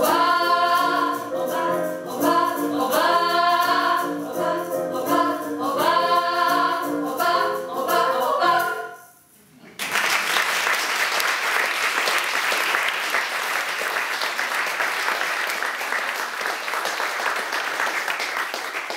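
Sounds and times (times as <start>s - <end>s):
audience applauding: 9.8s - 18.9s.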